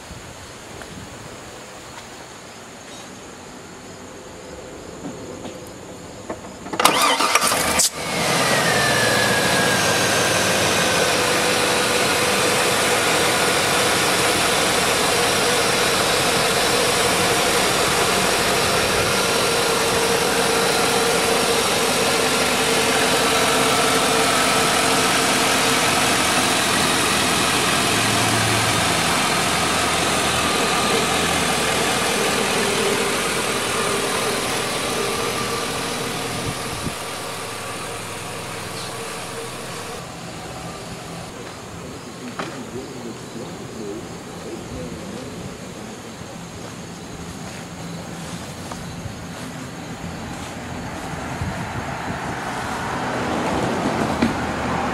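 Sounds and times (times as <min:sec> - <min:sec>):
car engine idling: 0:06.3 - 0:54.9
starter cranking: 0:06.7 - 0:40.0.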